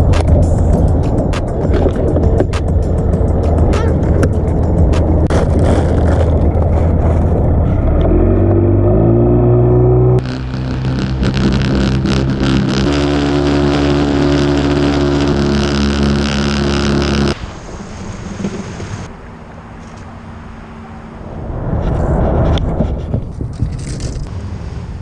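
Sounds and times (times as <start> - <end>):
music with held low notes: 0.0 - 5.3, 9.7 - 17.4
low engine rumble: 0.0 - 25.0
outdoor ambience: 0.0 - 25.0.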